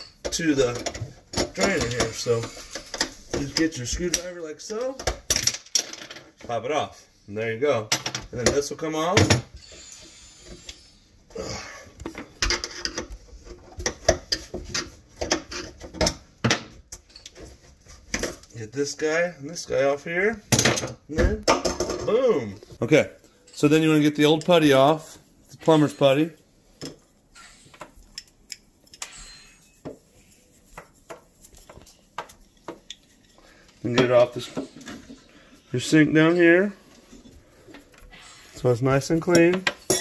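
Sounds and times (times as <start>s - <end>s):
metal tool scraping metal: 28.9s - 29.8s.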